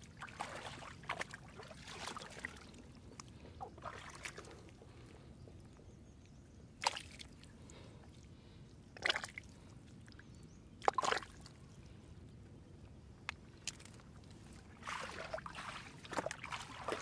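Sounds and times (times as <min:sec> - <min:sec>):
water sloshing splashes: 0:00.0 - 0:04.9, 0:10.8 - 0:11.5, 0:13.6 - 0:17.0.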